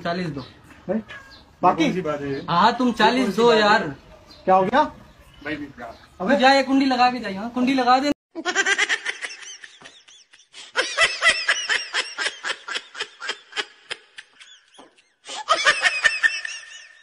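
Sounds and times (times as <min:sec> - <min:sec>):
high-pitched laughter: 0:08.4 - 0:17.0.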